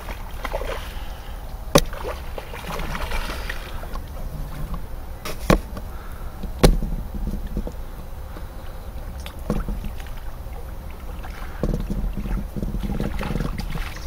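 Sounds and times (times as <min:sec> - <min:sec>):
fish splashing at surface: 0:00.0 - 0:06.1
wind rumbling on microphone: 0:00.0 - 0:14.0.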